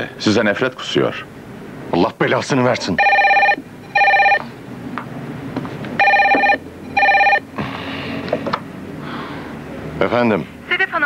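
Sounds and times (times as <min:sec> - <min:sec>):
desk telephone ringing: 0:03.0 - 0:04.5, 0:06.0 - 0:07.5.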